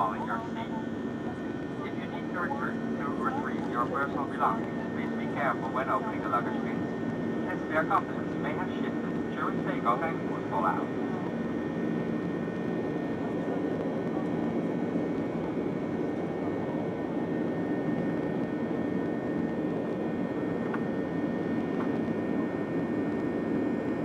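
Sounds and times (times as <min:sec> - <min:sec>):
jet engines humming: 0:00.0 - 0:24.0.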